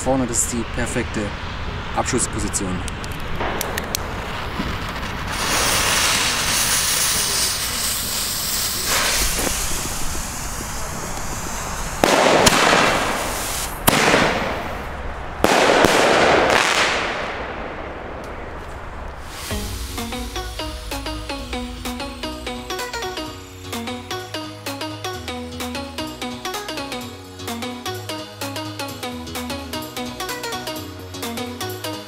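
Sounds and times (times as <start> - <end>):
firework crackling: 0.1 - 30.6
firework bangs: 3.2 - 24.8
firework fizzing hiss: 3.3 - 17.5, 18.2 - 26.9.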